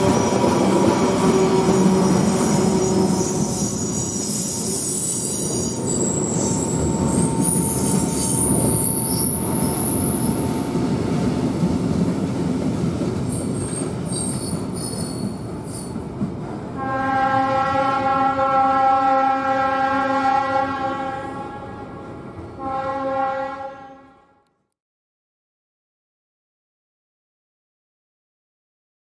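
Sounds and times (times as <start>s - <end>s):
train wheels rumbling on rails: 0.0s - 18.4s
high-pitched wheel squeal: 0.1s - 10.6s, 13.3s - 15.9s
steady horn tone: 16.8s - 24.5s.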